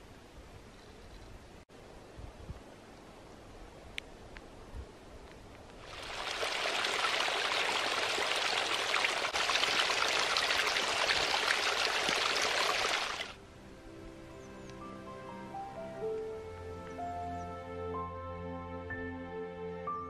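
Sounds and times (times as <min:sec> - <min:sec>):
stream running over rocks: 0:05.8 - 0:13.4
soft music: 0:13.4 - 0:20.0.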